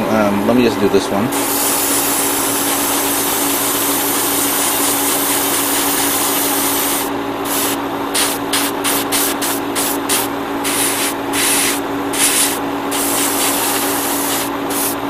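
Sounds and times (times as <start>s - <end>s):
steady hum: 0.0s - 15.0s
airbrush spraying hiss: 1.4s - 15.0s.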